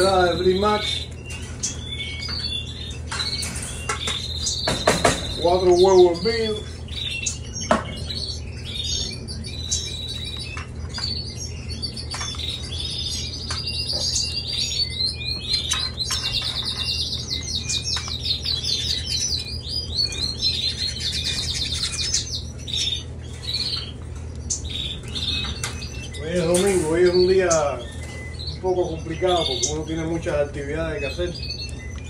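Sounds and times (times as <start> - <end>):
canaries chirping and singing: 0.0 - 32.0
steady low hum: 0.0 - 32.0.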